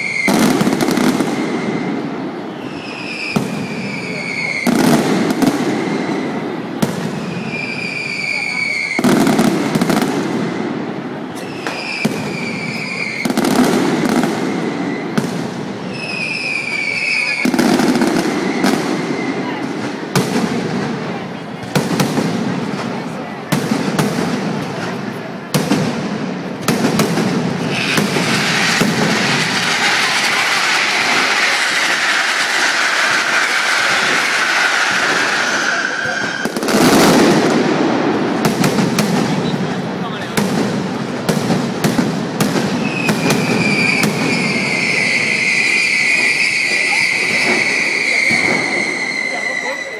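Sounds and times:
high whistle: 0:00.0 - 0:04.7, 0:07.3 - 0:09.1, 0:11.2 - 0:13.4, 0:15.9 - 0:17.5, 0:34.5 - 0:36.6, 0:42.8 - 0:49.9
firecrackers banging: 0:00.0 - 0:49.9.

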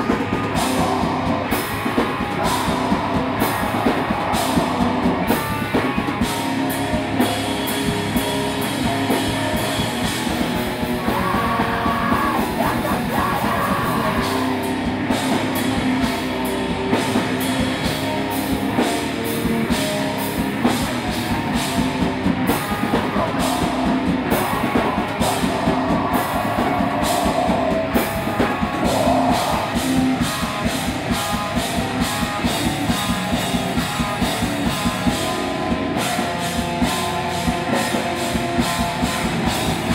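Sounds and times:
bass guitar: 0:00.0 - 0:39.9
distorted electric guitars: 0:00.0 - 0:39.9
fast drum kit: 0:00.0 - 0:39.9
vocalist shouting: 0:11.0 - 0:14.6.

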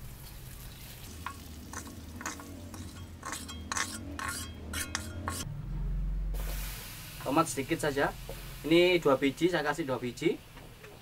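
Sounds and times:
hot oil sizzling: 0:00.0 - 0:05.5, 0:06.4 - 0:11.0
metal spatula scraping wok: 0:00.6 - 0:05.5.

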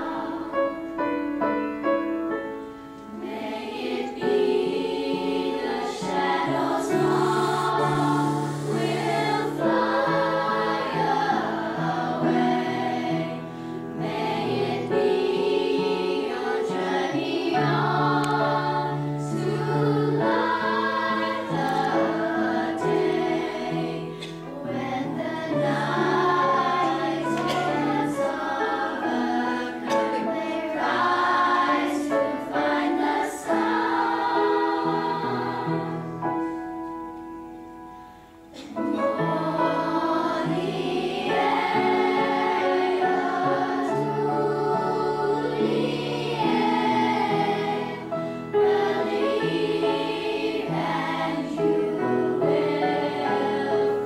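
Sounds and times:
children's choir singing: 0:00.0 - 0:02.0, 0:03.1 - 0:37.8, 0:38.5 - 0:54.0
piano accompaniment: 0:00.0 - 0:54.0.

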